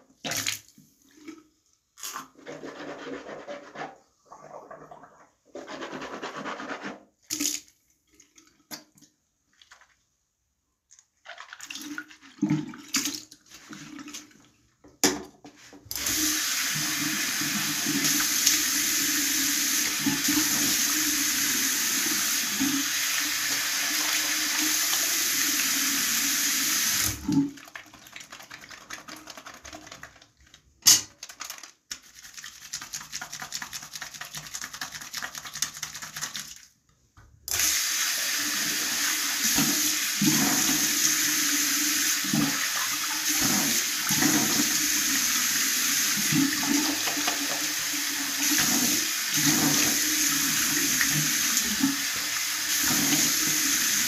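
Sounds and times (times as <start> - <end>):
tap water running into sink: 15.9 - 31.0, 37.5 - 54.0.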